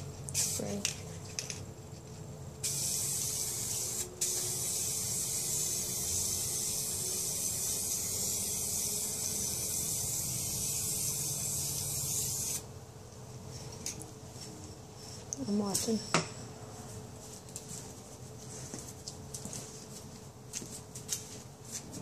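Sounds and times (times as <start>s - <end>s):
aerosol can spraying: 2.6s - 12.6s.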